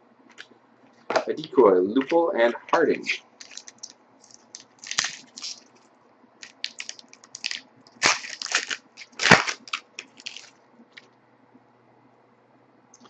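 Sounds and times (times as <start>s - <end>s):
foil wrapper crinkling and tearing: 3.0s - 5.7s, 6.4s - 10.6s.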